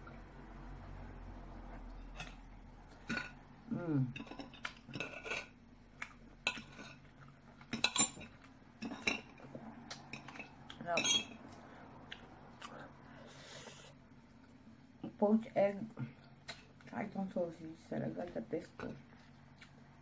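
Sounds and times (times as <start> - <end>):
cutlery clinking on a plate: 7.7 - 9.4, 10.1 - 11.4.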